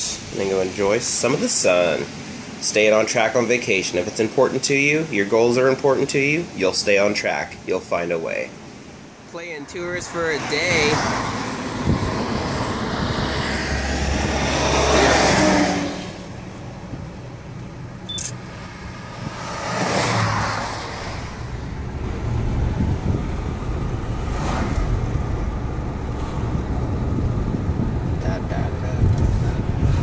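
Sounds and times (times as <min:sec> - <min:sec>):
car road and engine noise: 0:00.0 - 0:30.0.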